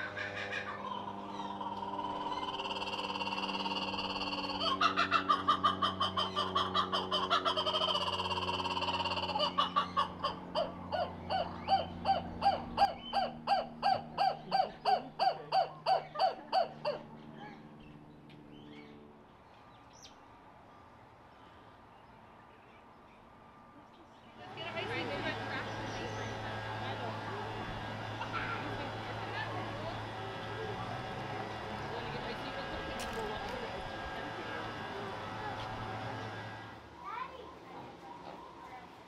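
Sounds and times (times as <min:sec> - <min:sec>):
kookaburra laughing call: 0:00.0 - 0:17.1
steady low hum: 0:00.0 - 0:39.0.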